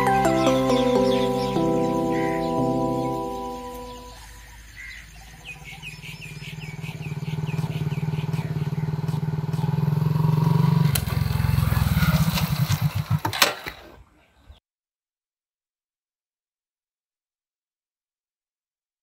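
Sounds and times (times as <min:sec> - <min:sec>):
motorcycle engine approaching: 0:05.2 - 0:13.4
motorcycle engine idling: 0:05.5 - 0:13.4.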